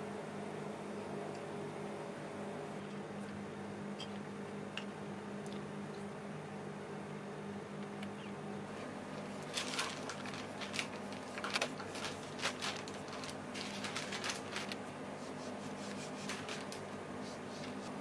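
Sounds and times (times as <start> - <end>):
steady low hum: 0.0 - 18.0
scratchy rustles of hand work: 8.8 - 18.0.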